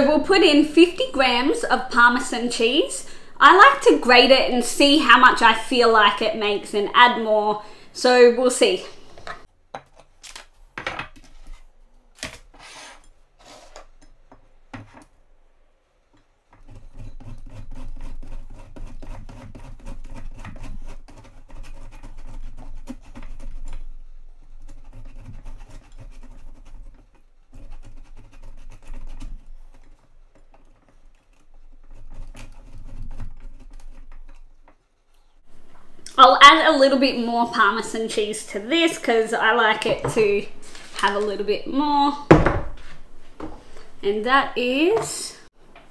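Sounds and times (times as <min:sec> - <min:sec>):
cheese grating on metal grater: 0:16.6 - 0:34.5
knocks: 0:42.3 - 0:42.8.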